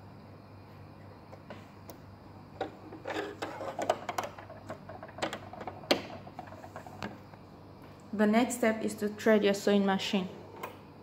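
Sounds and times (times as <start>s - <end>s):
plastic clicks and clatter: 3.3s - 7.2s.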